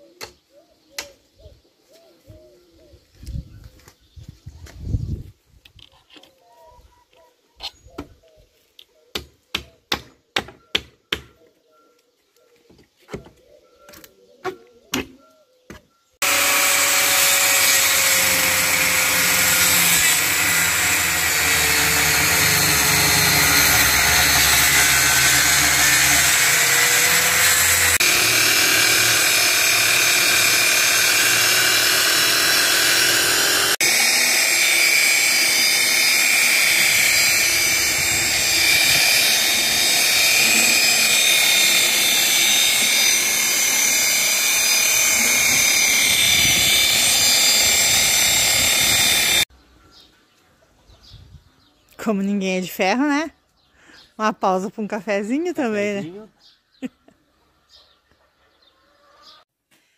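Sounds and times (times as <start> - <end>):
hammer striking wood: 9.1 - 11.3
electric saw cutting wood: 16.2 - 49.5.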